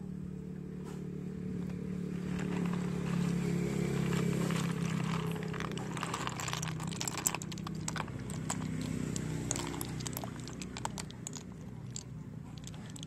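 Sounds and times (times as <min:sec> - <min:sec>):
wet shells clicking together: 0:04.6 - 0:13.0.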